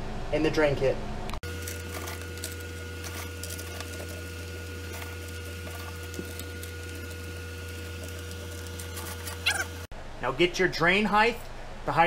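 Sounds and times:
steady low hum: 0.0 - 12.0
gravel stones clicking: 1.4 - 9.9.

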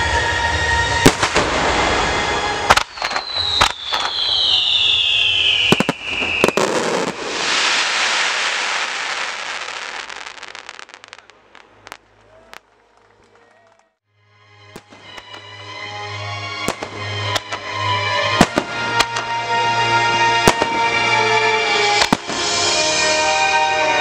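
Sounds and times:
firework whistle falling in pitch: 0.0 - 11.2, 16.6 - 24.0
firework crackling: 1.0 - 13.7, 14.8 - 15.6, 16.7 - 19.5, 20.4 - 24.0
firework shells bursting: 2.7 - 13.4, 14.8 - 15.6, 16.7 - 17.7
firework pops: 14.8 - 15.5.

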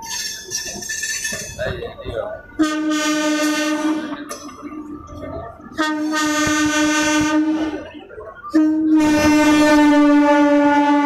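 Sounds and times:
passing train rumble: 0.0 - 11.0
train air horn blasts: 2.6 - 4.2, 5.8 - 7.9, 8.5 - 11.0.

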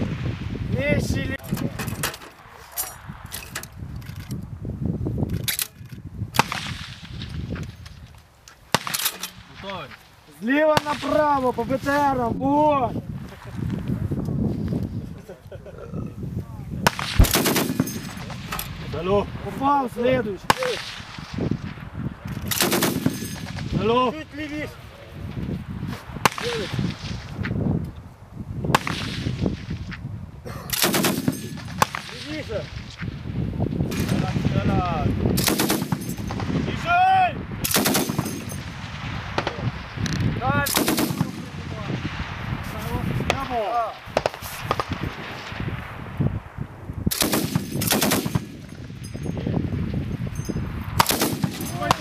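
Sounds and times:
heavy machine gun firing: 17.0 - 18.2, 40.7 - 41.4.

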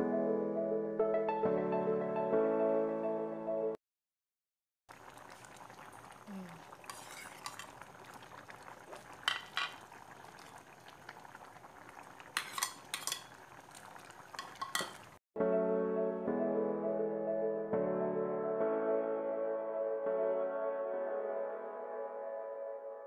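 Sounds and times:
background music: 0.0 - 3.8, 15.4 - 23.0
metal utensils clinking: 6.8 - 7.8, 9.1 - 10.6, 12.2 - 15.2.

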